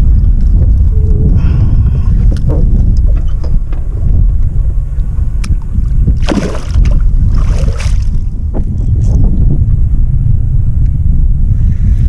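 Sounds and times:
wind rumble on microphone: 0.0 - 12.0
water splash: 6.2 - 8.2.

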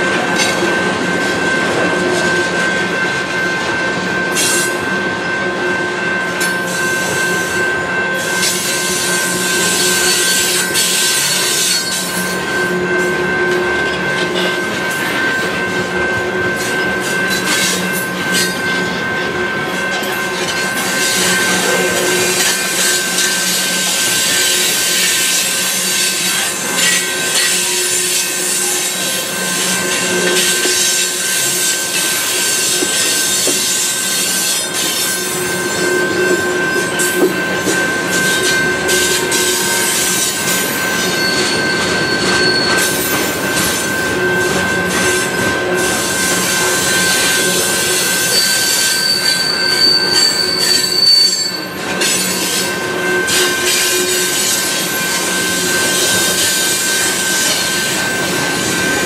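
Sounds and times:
train wheels rolling on rails: 0.0 - 59.0
high wheel squeal: 6.4 - 15.5, 16.2 - 59.0.

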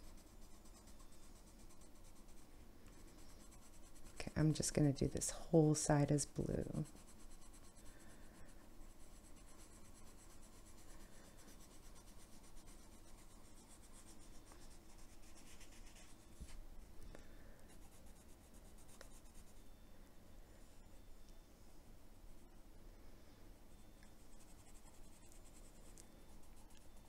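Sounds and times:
pencil scratching on paper: 0.0 - 2.4, 3.0 - 4.3, 6.8 - 8.0, 8.9 - 16.1.

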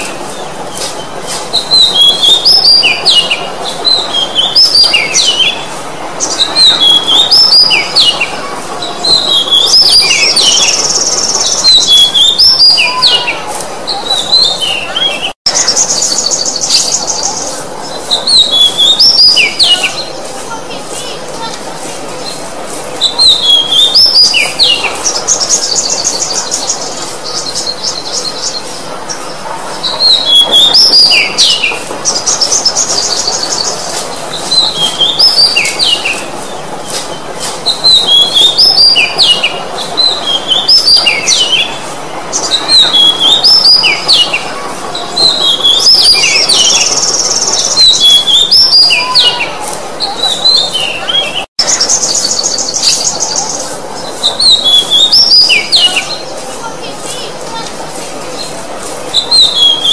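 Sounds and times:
bird singing whistled notes: 1.6 - 8.3, 9.0 - 13.4, 18.1 - 20.1, 23.0 - 28.6, 37.6 - 41.7, 42.3 - 44.4, 45.2 - 49.4, 54.3 - 56.3, 59.2 - 59.9.

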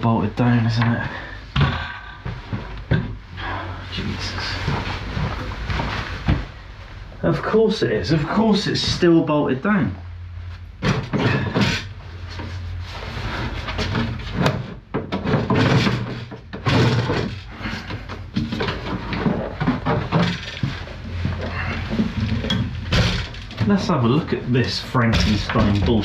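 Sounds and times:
low steady hum: 0.0 - 26.0
wood and metal knocking and scraping: 10.8 - 12.6, 13.3 - 23.9, 25.0 - 26.0.

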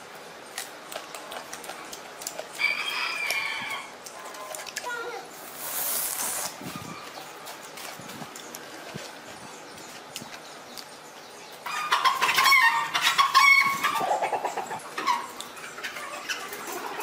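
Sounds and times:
chicken clucking loudly: 11.6 - 17.0.

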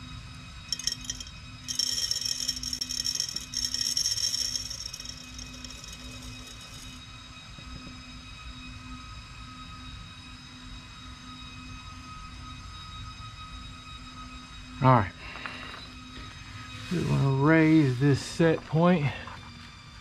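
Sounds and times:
faint whining tones: 0.0 - 20.0
metal granules pouring rattle: 0.7 - 7.0.

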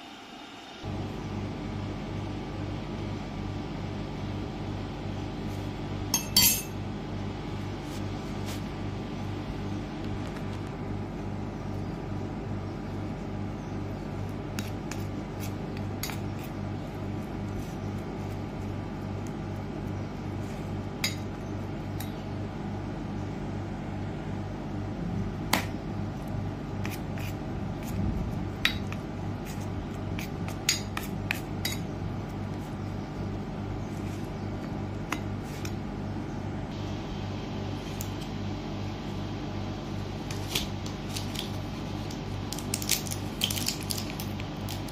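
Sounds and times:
low steady hum: 0.0 - 44.9
spoon clinking on metal: 6.1 - 6.8.

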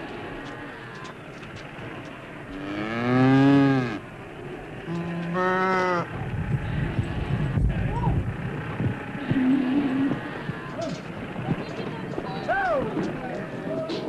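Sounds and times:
low noise of crowded flock: 0.0 - 14.0
farm animals calling: 2.5 - 7.7, 8.5 - 13.6.

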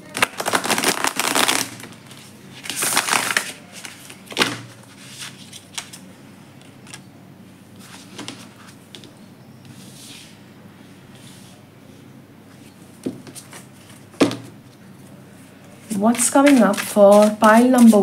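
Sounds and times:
cards riffle-shuffled: 16.1 - 18.0.

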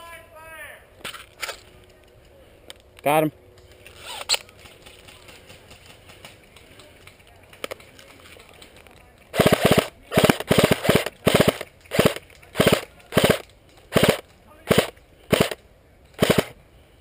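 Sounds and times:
suppressed airsoft rifle bursts: 9.4 - 15.6, 16.2 - 16.6.

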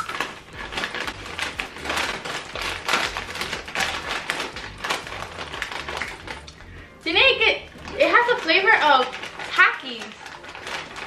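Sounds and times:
people crunching crackers: 0.0 - 7.0, 7.6 - 11.0.

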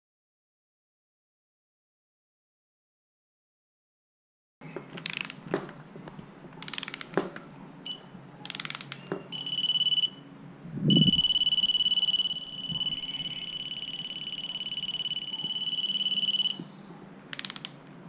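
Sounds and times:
steady high beep: 9.3 - 10.2, 10.9 - 16.6
torque wrench ratcheting: 17.3 - 17.7.

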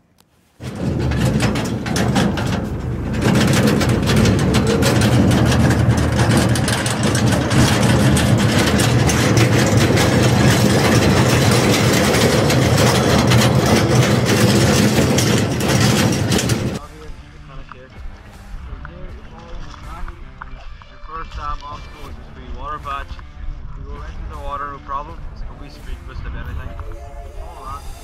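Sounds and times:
vehicle engine running: 0.6 - 17.4.

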